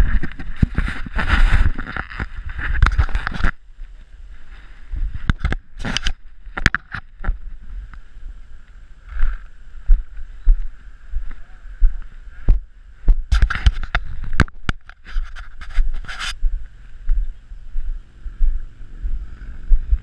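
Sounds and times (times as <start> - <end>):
camera handling rubbing and knocks: 0.0 - 3.6, 5.2 - 7.4, 13.3 - 16.4.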